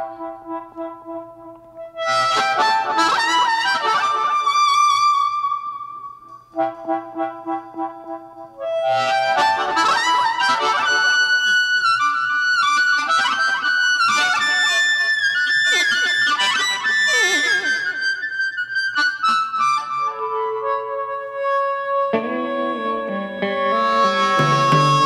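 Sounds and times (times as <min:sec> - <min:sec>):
amplified blues harmonica: 0:00.0 - 0:25.0
band playing: 0:22.1 - 0:25.0.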